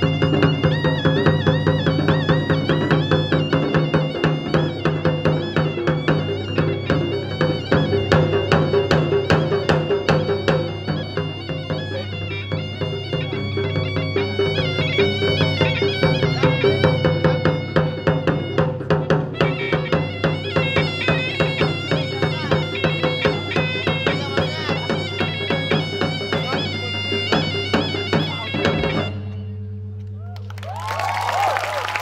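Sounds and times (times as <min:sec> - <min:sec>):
drums beaten fast: 0:00.0 - 0:29.2
shrill double-reed pipe melody: 0:00.0 - 0:29.7.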